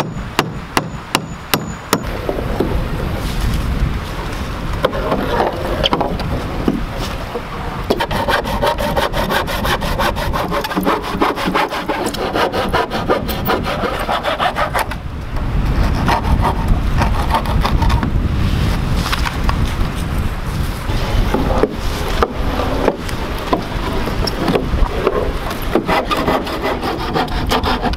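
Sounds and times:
hand saw cutting wood: 7.9s - 15.0s, 15.8s - 18.1s, 20.9s - 27.9s.

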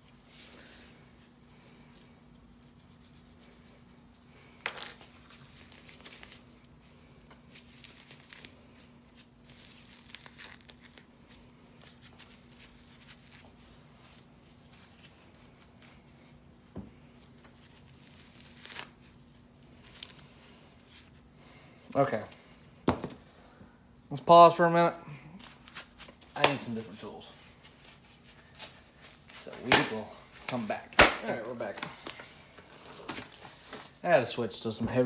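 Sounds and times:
hair ripping and crinkling: 0.3s - 16.1s, 17.2s - 20.9s
sharp snap: 31.0s - 31.3s.

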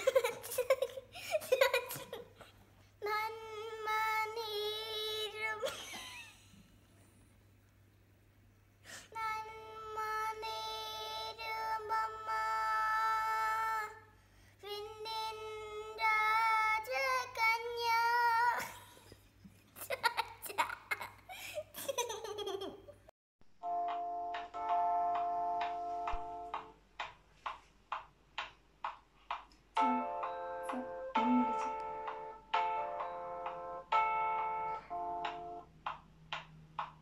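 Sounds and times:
girl singing unaccompanied: 3.0s - 5.7s, 9.0s - 19.0s, 29.8s - 32.3s.

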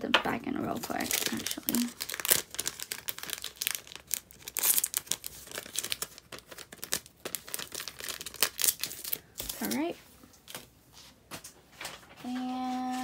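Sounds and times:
packaging crinkling: 0.6s - 10.6s.

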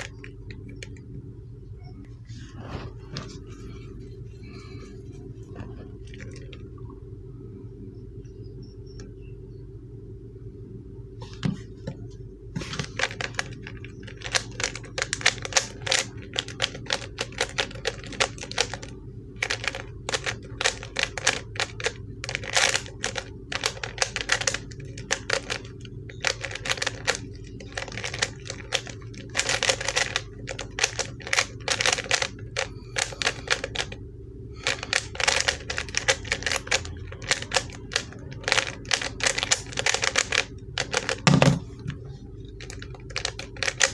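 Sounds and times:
plastic puzzle cube clacking: 12.8s - 33.9s, 34.6s - 41.6s, 42.6s - 43.9s.

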